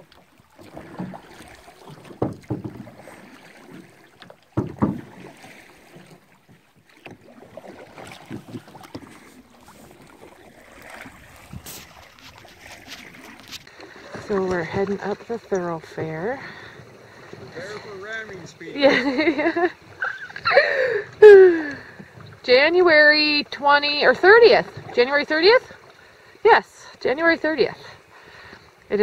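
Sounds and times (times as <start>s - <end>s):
paddle splashing in water: 0.0s - 29.0s
paddle knocks: 0.1s - 18.6s.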